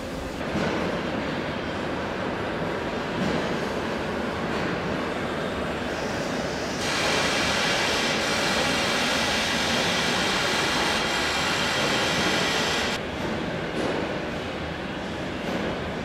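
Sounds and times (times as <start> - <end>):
rushing hiss of air: 5.9 - 13.0.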